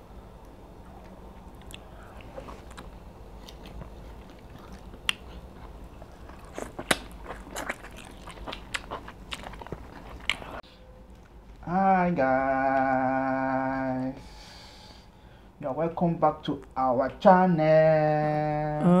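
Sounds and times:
people chewing and biting: 0.8s - 11.6s.

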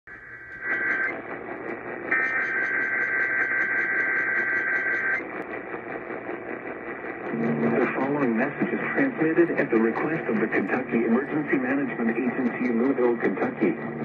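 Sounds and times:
radio static hiss: 0.1s - 14.0s
person speaking on radio: 7.2s - 14.0s.

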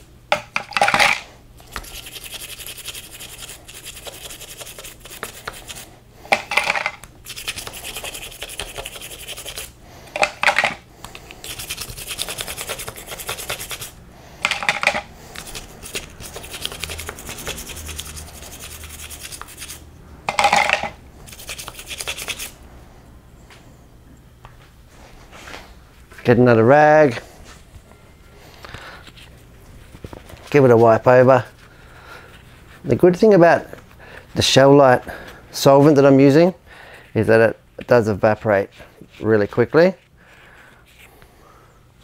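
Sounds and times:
toothbrush scrubbing metal: 1.7s - 10.6s, 11.4s - 22.6s.

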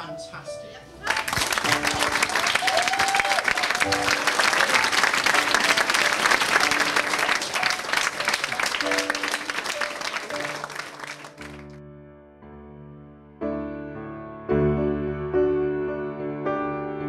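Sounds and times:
audience applauding: 1.0s - 11.8s.

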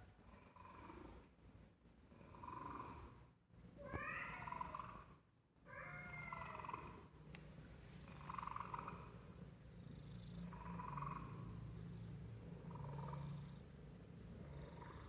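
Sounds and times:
cat purring: 0.2s - 1.3s, 2.1s - 3.2s, 6.3s - 7.1s, 7.8s - 15.0s
cat meowing: 3.8s - 4.9s, 5.7s - 6.7s.

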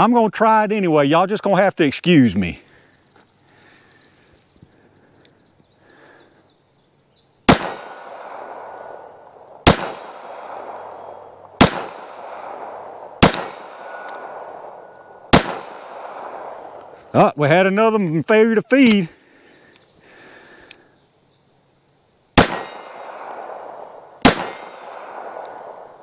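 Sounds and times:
pistol shots echoing: 7.5s - 17.0s, 22.4s - 26.0s.

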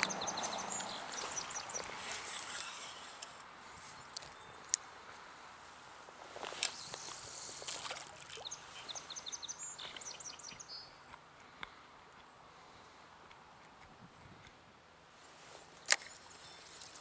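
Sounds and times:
small bird chirping: 0.0s - 3.2s, 8.3s - 11.0s.

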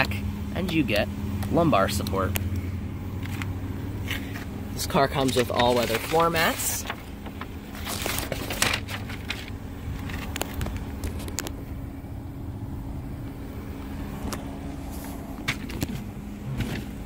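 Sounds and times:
car cabin low hum: 0.0s - 17.0s
phone rustling: 2.4s - 11.6s, 14.2s - 17.0s.

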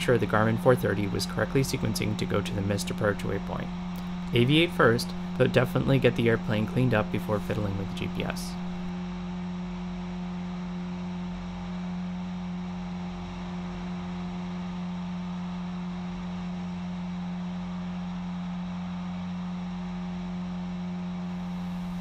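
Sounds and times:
propeller aircraft engine drone: 0.0s - 8.9s, 21.3s - 22.0s.

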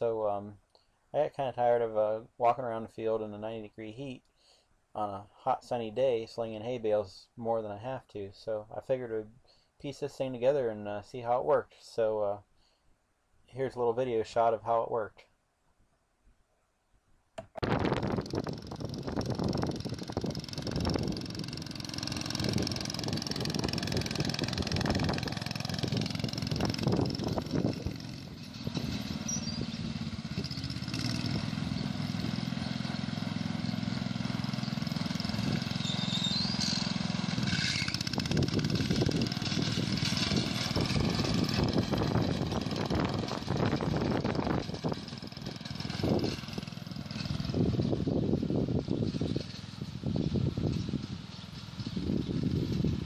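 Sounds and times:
garden tractor engine running: 17.4s - 53.0s.

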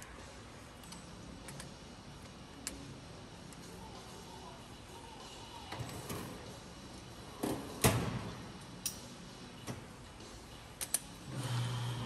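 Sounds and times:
tools clicking and knocking: 0.8s - 2.8s, 10.8s - 11.1s.

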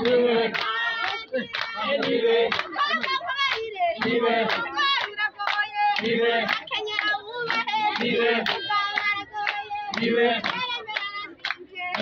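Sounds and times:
rhythmic hand clapping: 0.0s - 12.0s
woman chanting: 0.0s - 12.0s.

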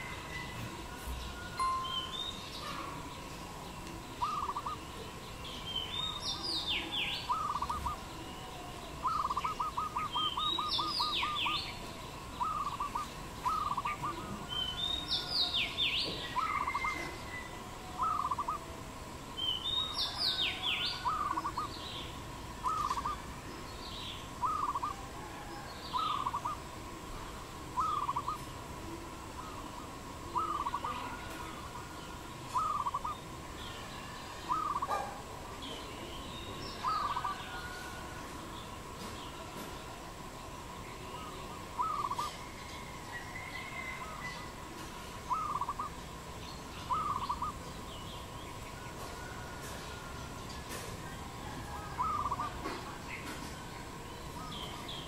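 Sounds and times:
dove cooing: 2.6s - 5.2s, 6.3s - 19.1s, 20.0s - 21.8s, 22.6s - 23.4s, 24.3s - 35.4s, 36.8s - 40.0s, 41.1s - 46.0s, 46.8s - 47.6s, 48.8s - 53.7s
bird's high sweeping calls: 4.1s - 5.0s, 5.6s - 8.4s, 9.0s - 18.6s, 19.4s - 23.3s, 24.1s - 25.1s, 25.9s - 26.7s, 27.8s - 28.6s, 29.4s - 35.2s, 36.1s - 38.1s, 41.1s - 44.6s, 45.2s - 46.0s, 46.6s - 50.1s, 51.7s - 53.3s.

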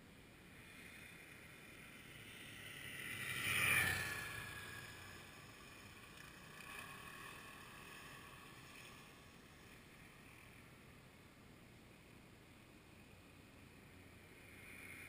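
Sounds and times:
vehicle passing by: 0.7s - 10.9s.

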